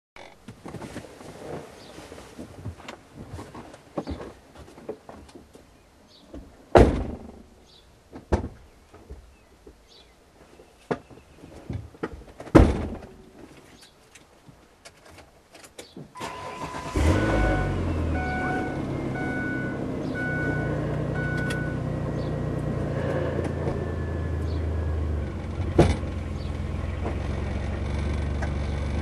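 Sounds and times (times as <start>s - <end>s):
loud thumps: 6.8s - 7.5s, 12.5s - 13.2s
short electronic beep: 16.2s - 21.8s
car engine starting and running: 16.2s - 29.0s.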